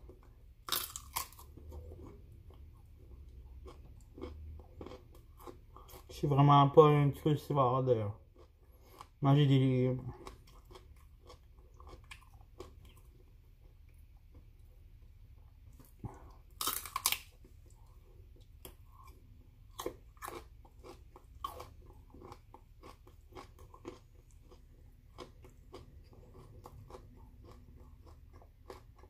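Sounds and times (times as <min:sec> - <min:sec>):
crisp chewing crunches: 0:00.6 - 0:06.1, 0:15.7 - 0:29.0
crunching bite of broccoli: 0:15.8 - 0:18.0, 0:18.6 - 0:29.0.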